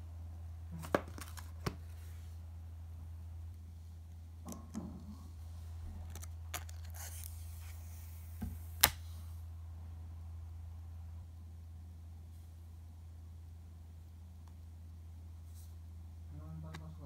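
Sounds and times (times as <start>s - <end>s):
steady low hum: 0.0s - 17.0s
paper rustle: 6.1s - 8.1s.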